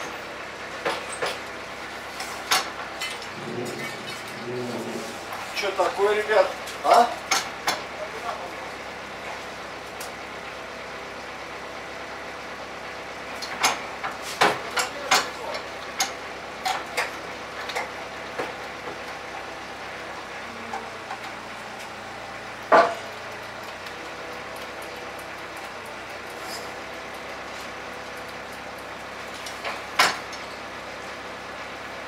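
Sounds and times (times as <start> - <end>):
steady hum: 3.3 - 7.2.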